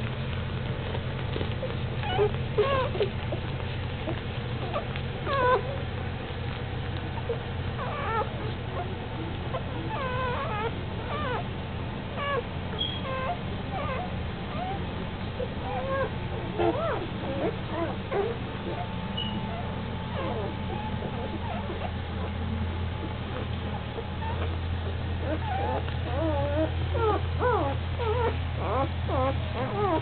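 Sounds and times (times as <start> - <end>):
low hum: 0.0 - 30.0
puppies squeaking and whimpering: 0.8 - 30.0.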